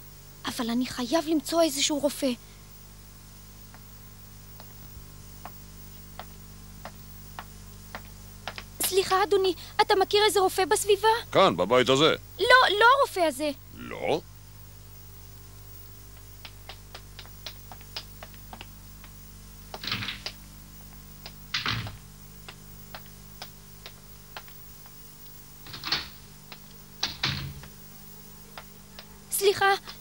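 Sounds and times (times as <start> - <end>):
low steady hum: 0.0 - 30.0
footsteps on wooden floor: 6.2 - 8.9, 16.2 - 25.0.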